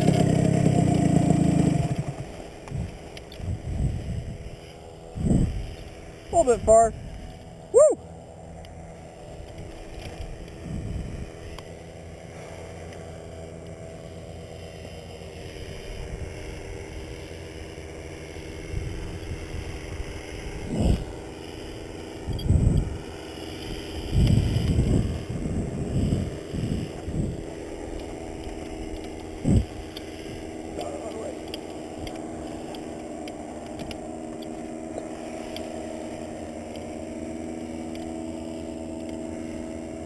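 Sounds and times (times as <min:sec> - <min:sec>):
paramotor engine idling: 0:00.0 - 0:40.0
wind buffeting microphone: 0:01.8 - 0:05.8, 0:10.2 - 0:11.5, 0:22.2 - 0:30.7.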